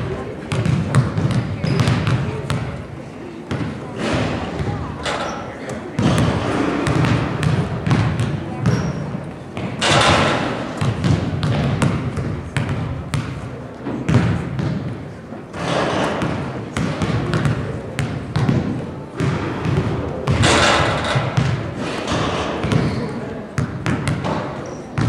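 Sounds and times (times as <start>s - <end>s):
voices murmuring: 0.0s - 10.8s
basketball bouncing on wooden floor: 0.5s - 2.7s, 6.0s - 13.4s, 14.1s - 15.0s, 15.6s - 23.0s, 23.6s - 25.0s.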